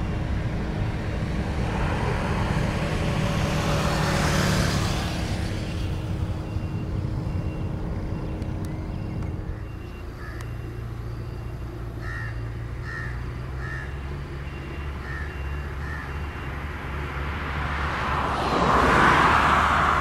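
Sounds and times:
distant engines rumbling: 0.0 - 20.0
faint repeating beep: 6.4 - 11.8
bird calling: 7.4 - 16.5.

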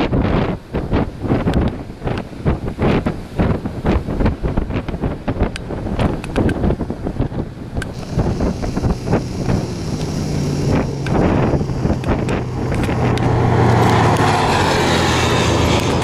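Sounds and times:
wind gusting on microphone: 0.0 - 16.0
quad bike engines running: 7.8 - 16.0.

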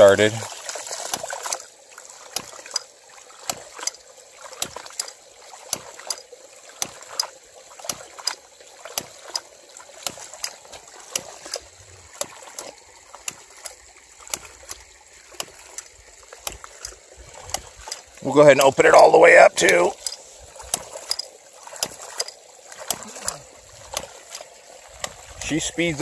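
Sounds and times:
pump valves clacking: 0.0 - 26.0
water spurting and splashing: 0.0 - 26.0.

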